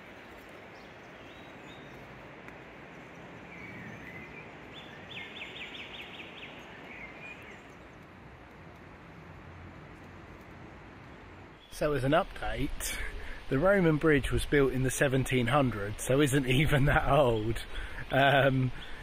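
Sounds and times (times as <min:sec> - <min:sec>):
small bird calling: 0:00.0 - 0:02.2, 0:02.9 - 0:08.1
river flowing over stones: 0:00.0 - 0:17.5.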